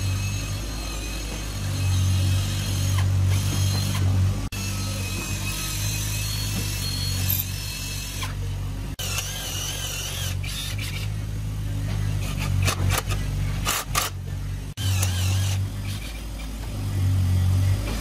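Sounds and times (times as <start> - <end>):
electric drill boring into wood: 9.0 - 11.0, 14.8 - 16.2.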